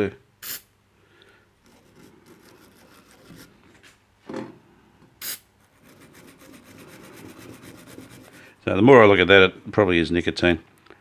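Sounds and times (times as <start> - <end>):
brush scrubbing metal: 5.6 - 8.6.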